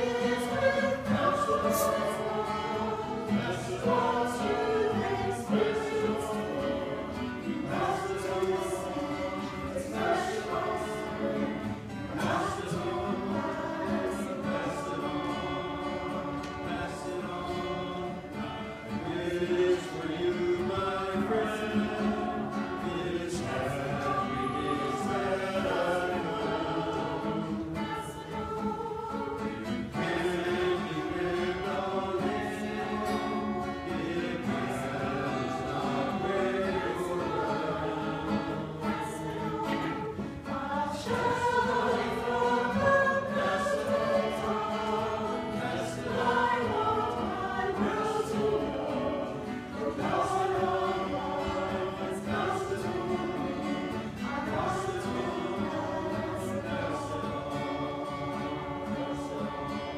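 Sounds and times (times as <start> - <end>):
acoustic guitar: 0.0 - 59.9
choir singing: 0.0 - 59.9.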